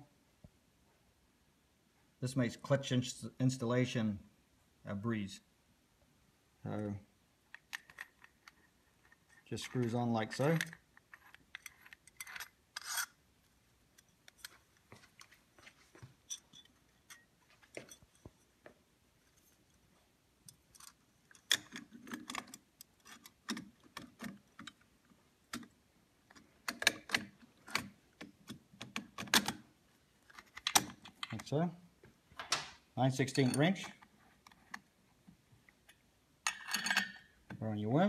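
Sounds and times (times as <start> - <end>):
metal clicks and clinks: 16.2 - 18.5, 20.5 - 24.8, 35.9 - 37.4.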